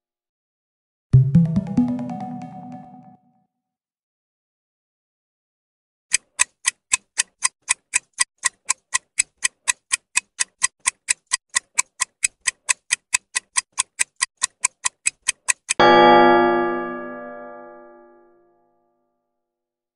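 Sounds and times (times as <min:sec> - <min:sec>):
keyboard chord: 0:01.2 - 0:03.2, 0:15.8 - 0:18.7
clock ticking: 0:06.1 - 0:15.9.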